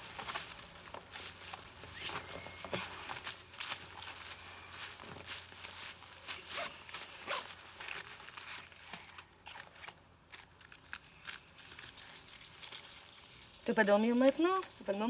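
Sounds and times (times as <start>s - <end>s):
bag rustling and scraping: 0.0s - 9.9s.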